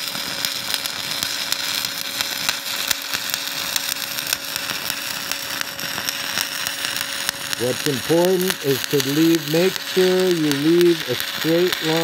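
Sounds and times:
welding arc crackling: 0:00.0 - 0:12.0.

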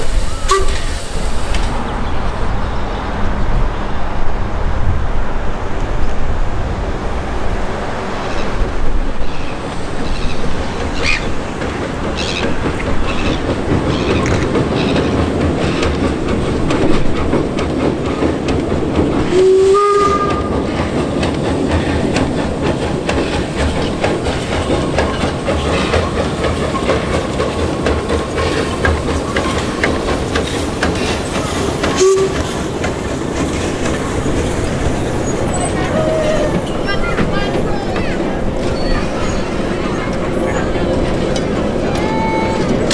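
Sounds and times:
steam locomotive exhaust beats: 0:00.0 - 0:42.9
steam whistle blast: 0:00.2 - 0:01.0, 0:19.3 - 0:20.5, 0:32.0 - 0:32.4
carriage wheels clattering on rails: 0:09.5 - 0:19.5, 0:20.1 - 0:42.9.

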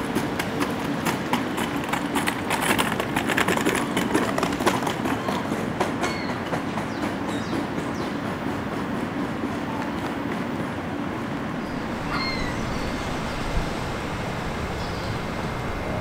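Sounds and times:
subway train wheels clacking: 0:00.0 - 0:16.0
faint brief squeals: 0:11.7 - 0:13.4.

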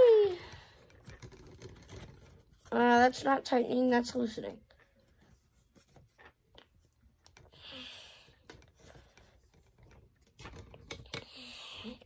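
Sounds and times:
faint plastic clicks and creaks: 0:00.3 - 0:02.8, 0:04.6 - 0:07.6, 0:08.2 - 0:12.0.

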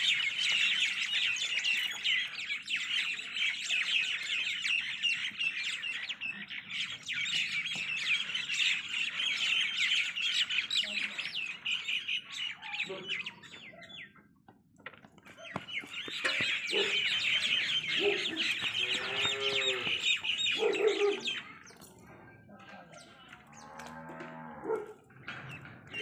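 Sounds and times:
birds chirping and clucking: 0:00.0 - 0:26.0
farm animals calling: 0:15.3 - 0:26.0.

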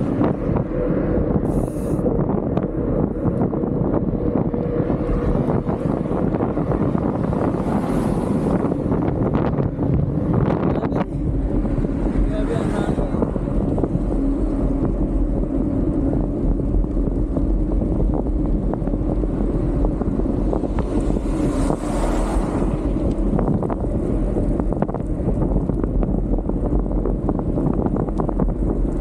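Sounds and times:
truck passing: 0:00.0 - 0:27.1
wind on microphone: 0:00.0 - 0:29.0.

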